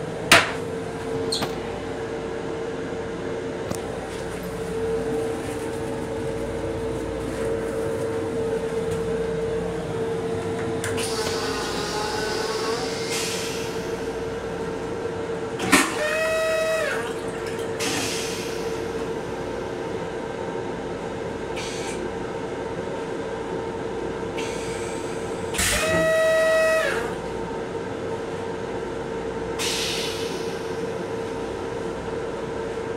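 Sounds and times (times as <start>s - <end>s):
steady hum: 0.0s - 15.6s.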